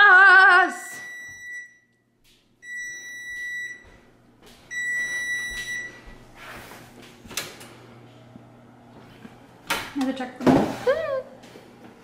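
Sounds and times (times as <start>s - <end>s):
oven timer beeping: 0.9s - 4.0s, 4.7s - 6.2s.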